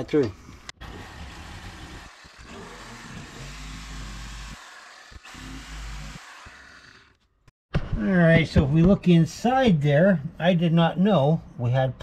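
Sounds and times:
reciprocating saw cutting drywall: 0.8 - 7.2.

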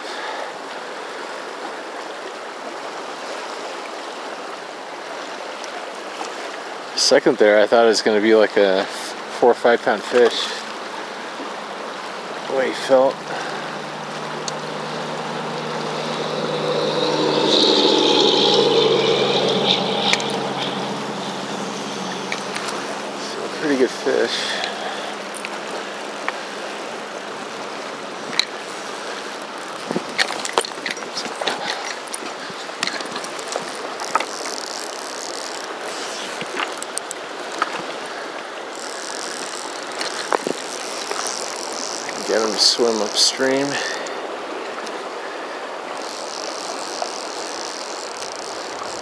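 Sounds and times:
river current rushing: 0.0 - 49.0
humming sound: 11.5 - 30.1
sharp clicks and ticks: 13.2 - 24.2, 25.1 - 31.0, 32.8 - 37.2, 38.8 - 44.1, 46.0 - 49.0.

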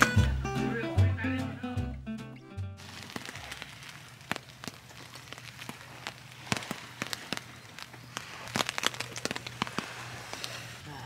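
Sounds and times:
rain tapping on tent fabric: 2.8 - 10.9.

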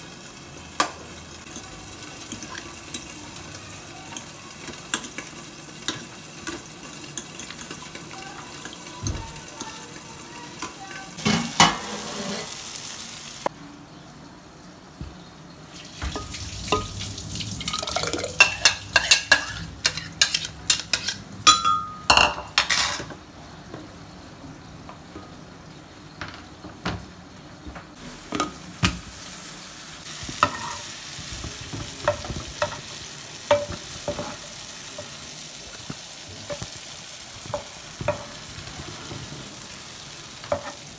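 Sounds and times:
oil sizzling in a pan: 0.0 - 13.6, 15.6 - 40.9
utensil clinking against a pot: 17.7 - 23.1
spoon stirring in a bowl: 18.2 - 21.9.

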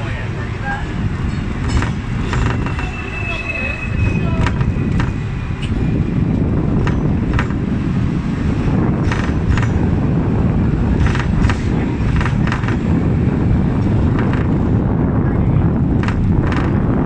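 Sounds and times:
tram rumbling on tracks: 0.0 - 17.0
sharp clacks and rattles: 1.2 - 2.9, 4.4 - 5.8, 6.6 - 7.7, 9.0 - 10.0, 10.9 - 13.0, 13.8 - 14.7, 15.9 - 17.0.

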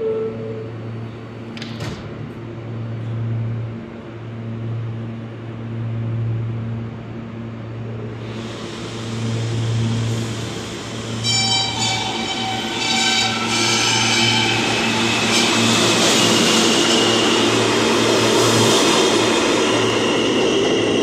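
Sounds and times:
train doors closing: 0.0 - 3.2
train electrical hum: 0.0 - 21.0
hiss: 8.2 - 11.2.

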